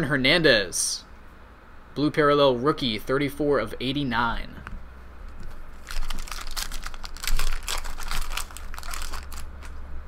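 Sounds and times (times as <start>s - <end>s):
foil wrapper crinkling: 5.7s - 9.8s.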